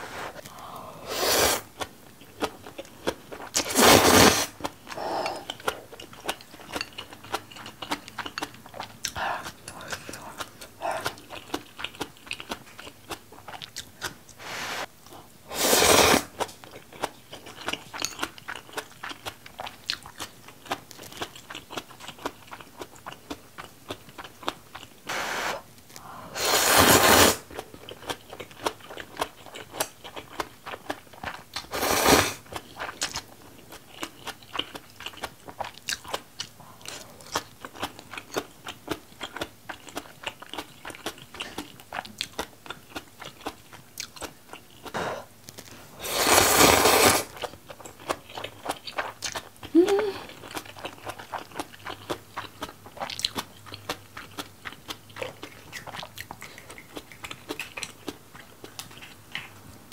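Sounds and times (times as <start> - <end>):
chewing noodles: 0.3 - 25.1, 25.8 - 59.9
loud noodle slurps: 1.0 - 1.7, 3.6 - 4.6, 15.5 - 16.3, 25.1 - 25.6, 26.4 - 27.5, 31.7 - 32.4, 46.0 - 47.3
wet mouth clicks: 55.2 - 59.6.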